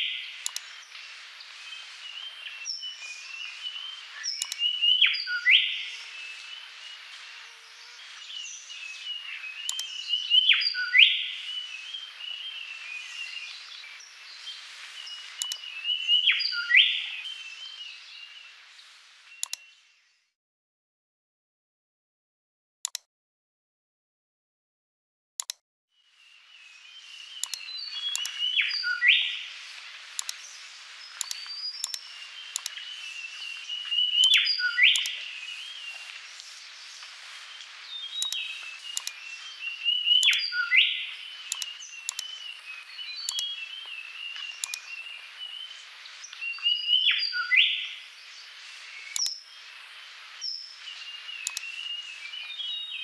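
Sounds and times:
birdsong: 0.0s - 20.3s, 26.0s - 53.0s
steady outdoor hiss: 0.0s - 20.3s, 26.0s - 53.0s
computer mouse clicks: 0.4s - 0.7s, 4.3s - 4.7s, 9.7s - 10.0s, 15.4s - 15.6s, 19.4s - 19.6s, 22.9s - 23.1s, 25.4s - 25.6s, 27.4s - 28.4s, 30.2s - 30.4s, 31.2s - 32.8s, 34.2s - 35.2s, 38.2s - 39.2s, 40.2s - 40.4s, 41.5s - 42.3s, 43.3s - 43.5s, 44.6s - 44.9s, 49.1s - 49.4s, 51.4s - 51.7s
loud bird chirping phrase: 26.2s - 29.6s, 30.2s - 36.1s, 37.8s - 49.8s, 50.4s - 53.0s.

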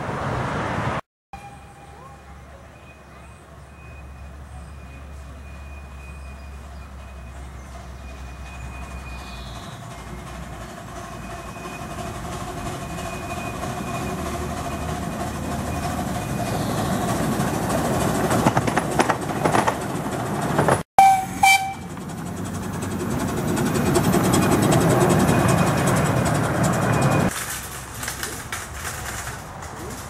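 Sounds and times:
carriages rumbling past: 0.0s - 30.0s
train wheels clattering on track: 5.2s - 30.0s
steam whistle toot: 21.0s - 21.9s.

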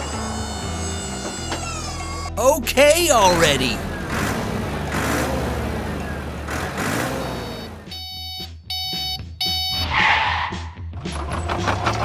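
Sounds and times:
toy truck reversing beeper: 7.3s - 10.0s.

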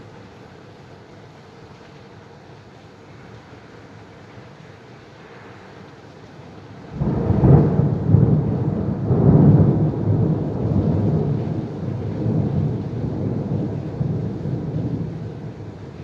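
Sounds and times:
thunder rumbling: 6.9s - 16.0s.

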